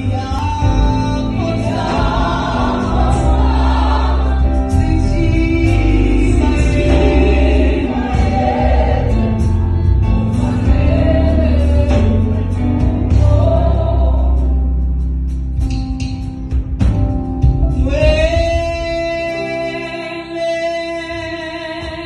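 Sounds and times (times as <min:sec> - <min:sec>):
band with drums and keyboards: 0:00.0 - 0:22.0
group singing in harmony: 0:01.2 - 0:14.9.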